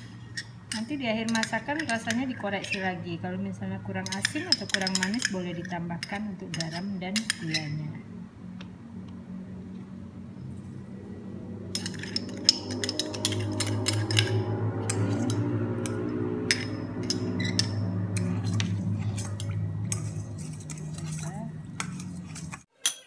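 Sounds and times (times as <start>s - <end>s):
metal spoon clinking in pot: 0.0s - 3.0s, 4.0s - 7.9s, 11.7s - 23.0s
low steady hum: 0.0s - 22.7s.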